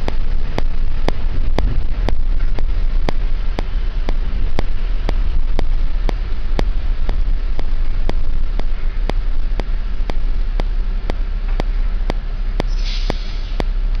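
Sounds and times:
bus engine and road rumble: 0.0 - 14.0
faint regular clicks: 0.0 - 14.0
short hiss: 12.6 - 13.8.

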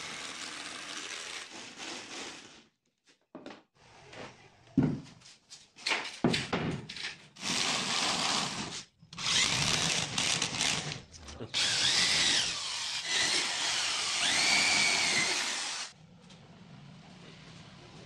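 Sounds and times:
electric drill boring into wood: 0.0 - 1.5, 7.4 - 11.0, 11.6 - 15.9.

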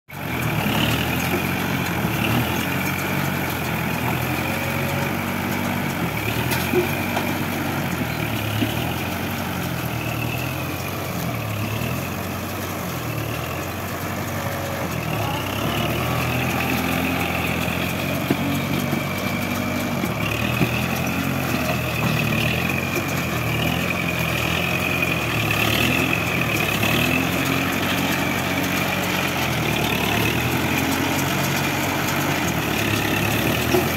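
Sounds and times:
tractor diesel engine running: 0.1 - 33.9.

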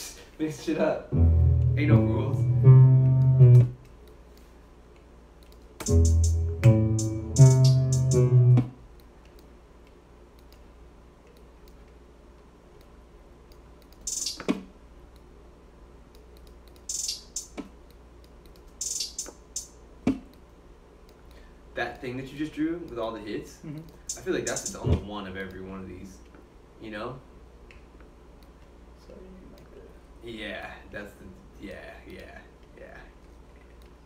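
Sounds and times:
sharp clicks: 4.9 - 6.0, 13.5 - 15.3, 16.1 - 19.7, 23.9 - 24.8
trap beat with plucked melody: 5.8 - 8.7
short hissy bursts: 14.0 - 14.4, 16.9 - 17.6, 18.7 - 19.8, 24.0 - 24.8.

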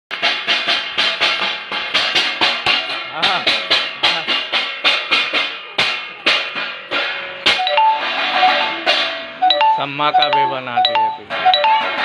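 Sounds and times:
steel plate struck rhythmically: 0.1 - 12.0.

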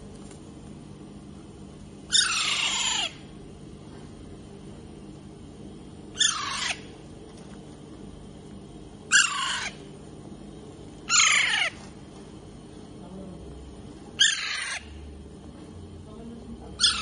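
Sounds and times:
parakeets squawking: 2.1 - 3.3, 6.1 - 7.0, 9.1 - 9.9, 11.0 - 11.9, 14.2 - 15.1, 16.7 - 17.0.

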